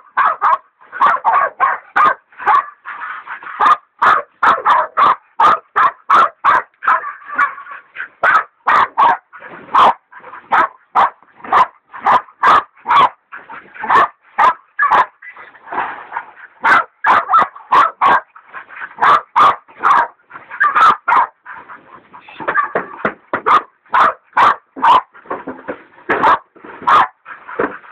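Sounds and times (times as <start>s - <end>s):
dogs baying: 0.2s - 27.9s.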